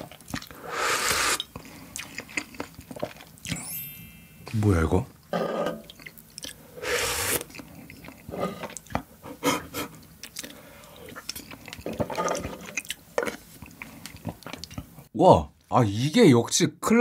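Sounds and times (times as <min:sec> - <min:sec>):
chewing with wet mouth clicks: 0:00.0 - 0:00.6, 0:01.4 - 0:03.5, 0:05.9 - 0:06.6, 0:07.4 - 0:09.1, 0:10.0 - 0:15.0
slurping broth from a spoon: 0:00.4 - 0:02.2, 0:06.8 - 0:08.8.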